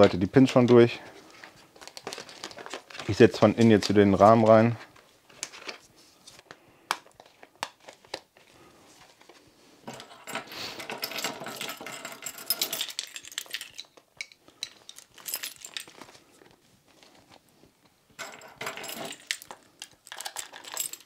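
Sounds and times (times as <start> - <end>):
metallic jingling and rattling: 9.9 - 14.0, 14.6 - 16.1, 18.2 - 21.0.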